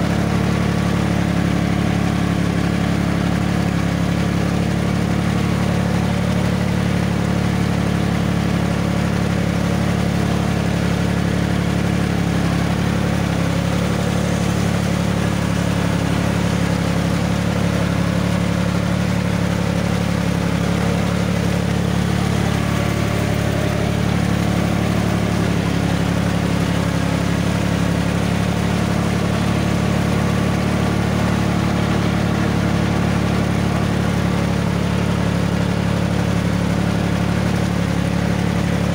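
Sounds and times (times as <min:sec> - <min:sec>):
tractor diesel engine droning: 0:00.0 - 0:38.9
faint engine note rising and falling: 0:10.8 - 0:35.4.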